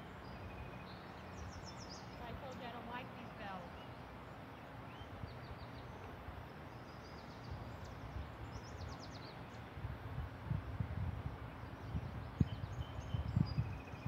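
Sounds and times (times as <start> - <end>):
small birds chirping: 0.0 - 9.8, 11.4 - 14.0.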